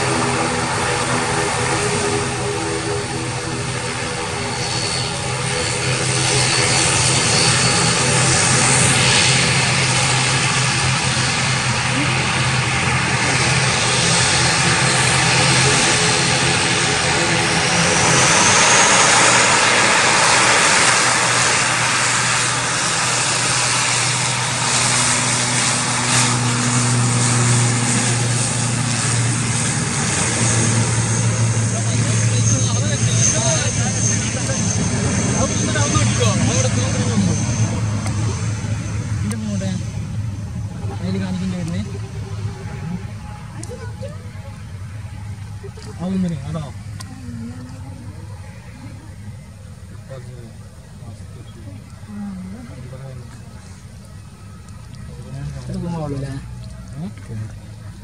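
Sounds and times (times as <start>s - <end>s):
low propeller hum: 0.0s - 58.0s.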